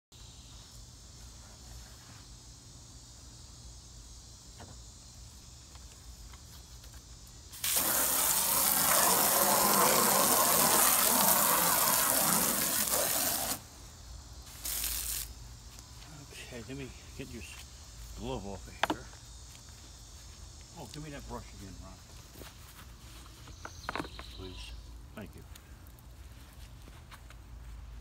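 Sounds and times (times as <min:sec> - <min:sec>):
hose nozzle spraying water: 0:07.5 - 0:13.7, 0:14.5 - 0:15.3.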